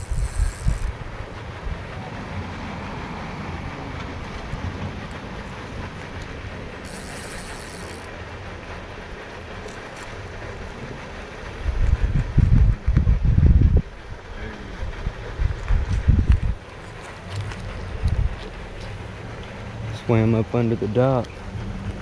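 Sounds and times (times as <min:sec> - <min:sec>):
high-pitched buzzing: 0:00.0 - 0:01.0, 0:06.8 - 0:08.1
wind on microphone: 0:00.0 - 0:02.0, 0:11.6 - 0:19.0.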